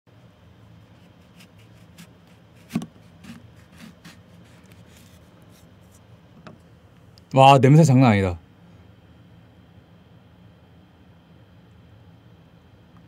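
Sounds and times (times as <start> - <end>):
knife slicing lemon: 1.0 - 5.7.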